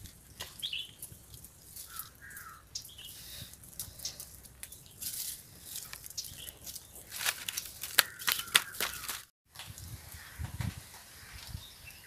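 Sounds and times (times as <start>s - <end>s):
fire of dry leaves crackling: 0.0s - 11.8s
bird chirps: 0.6s - 1.0s.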